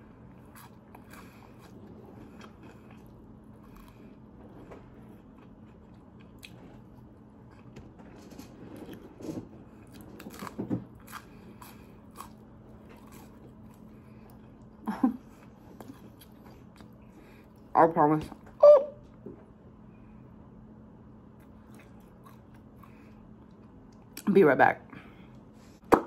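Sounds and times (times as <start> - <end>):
chewing and biting food: 0.0 - 7.9, 8.8 - 17.6, 21.4 - 24.2
faint steady hum: 0.0 - 26.0.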